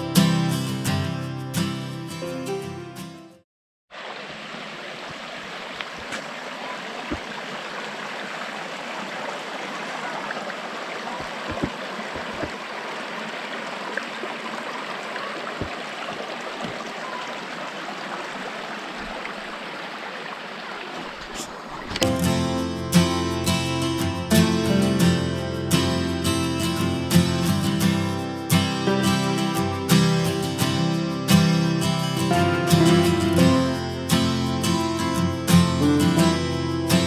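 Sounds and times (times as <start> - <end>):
stream rushing over stones: 3.9 - 22.8.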